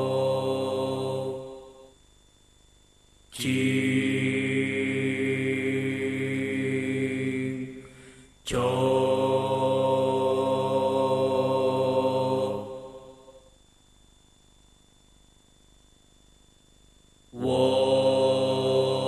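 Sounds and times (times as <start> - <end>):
droning chant-like music: 0.0 - 2.0, 3.4 - 13.6, 17.4 - 19.0.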